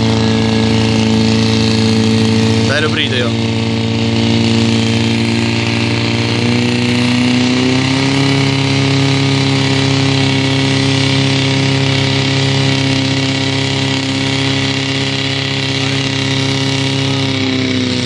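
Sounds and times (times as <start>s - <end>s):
pump engine running hard: 0.0s - 18.0s.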